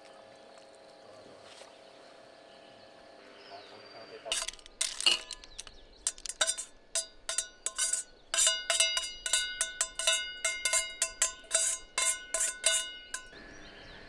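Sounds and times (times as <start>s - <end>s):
metal tongs tapping a frying pan: 4.3s - 13.4s.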